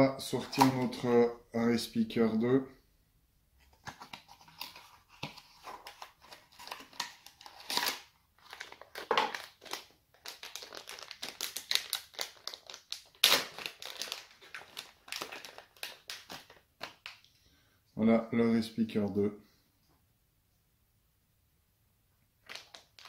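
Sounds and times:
plastic bag crinkling: 4.4 - 17.2, 22.4 - 23.0.

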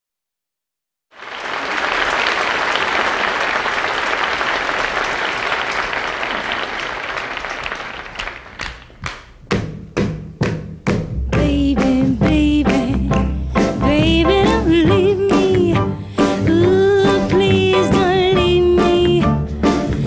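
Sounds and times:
audience applause: 1.1 - 9.3
rhythmic handclaps: 1.2 - 20.0.

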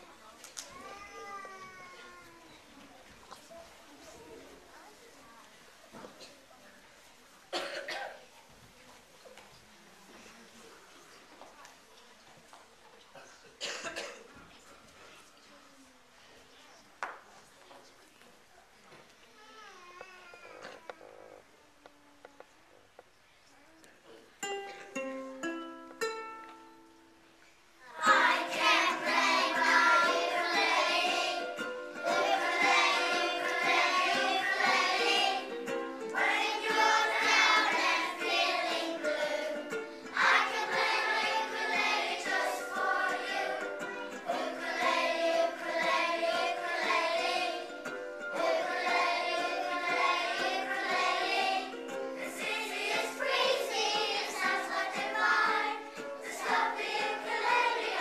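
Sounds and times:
ukuleles strummed: 24.4 - 27.3, 28.0 - 58.0
children singing: 28.0 - 58.0.

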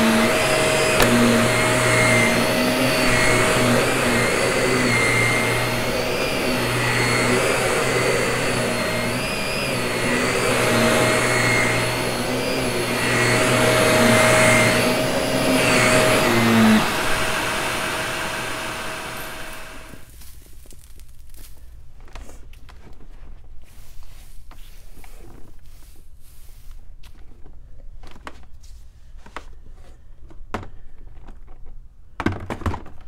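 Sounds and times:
vacuum cleaner running: 0.0 - 20.1.

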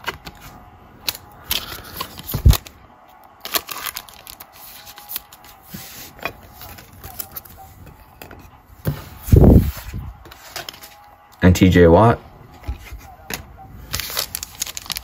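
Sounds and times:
plastic sleeve crinkling: 3.4 - 5.6, 13.8 - 15.0.

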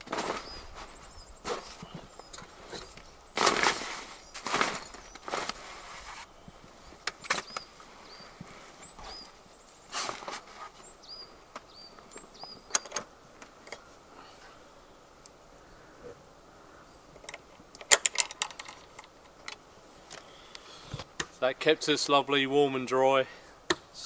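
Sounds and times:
tent fabric rustling and scraping: 0.0 - 11.3
small birds chirping: 0.0 - 17.8, 18.5 - 21.5.

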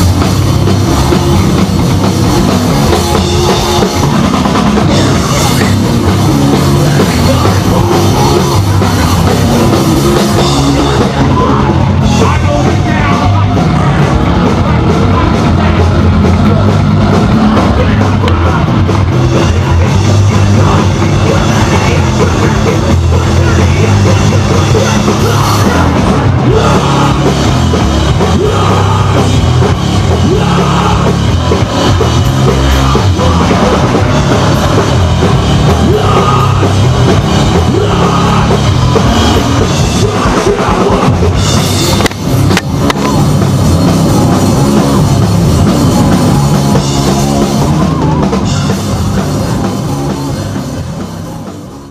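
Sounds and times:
bass guitar: 0.0 - 51.9
distorted electric guitars: 0.0 - 51.9
drum kit: 0.0 - 51.9
shouted vocals: 2.4 - 41.4.

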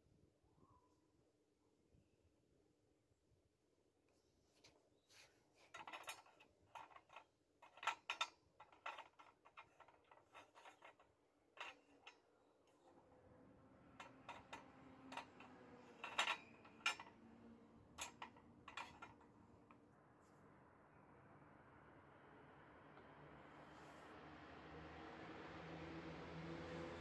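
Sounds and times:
metal spoon clinking on tin: 14.0 - 17.2, 18.0 - 19.2.

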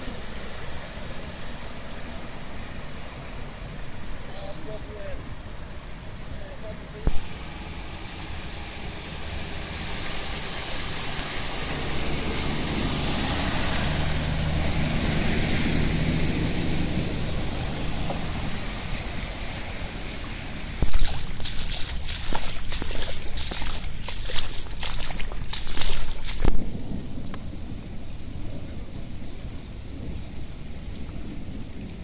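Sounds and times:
car engine humming: 0.0 - 27.0
wheels washing through floodwater: 0.0 - 32.0
footsteps splashing through water: 17.5 - 26.7.

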